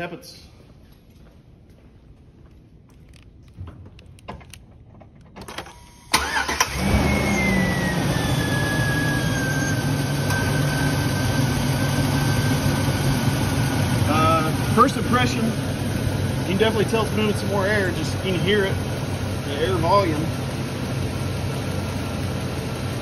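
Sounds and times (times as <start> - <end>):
engine cranking and idling: 3.1 - 23.0
engine whine: 3.1 - 23.0
cooling fan air rush: 6.7 - 23.0.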